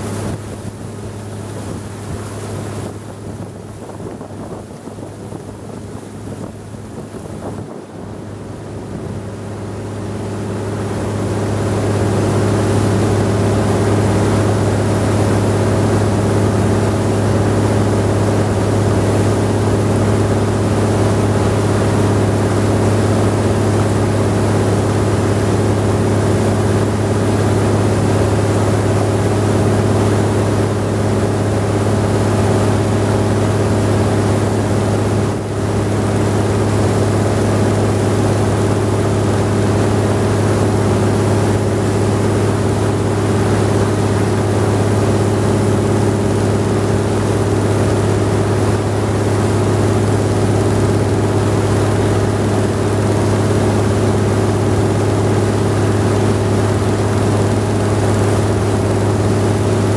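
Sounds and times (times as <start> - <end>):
wind noise: 0.0 - 9.6
boat engine low hum: 0.0 - 59.9
water noise: 0.0 - 59.9.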